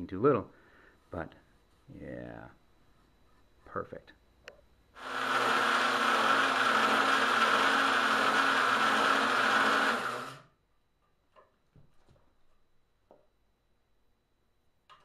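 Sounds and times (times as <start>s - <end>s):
electric drill running: 5.0s - 10.5s.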